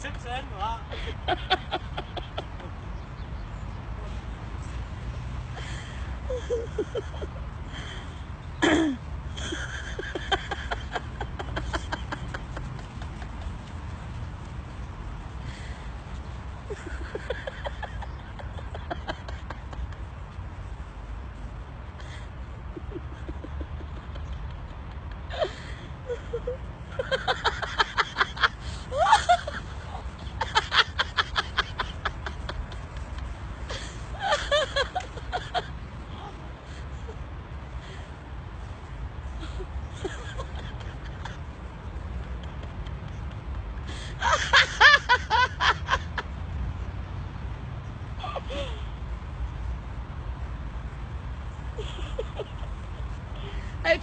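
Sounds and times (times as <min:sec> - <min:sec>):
person laughing: 0:22.0 - 0:36.4.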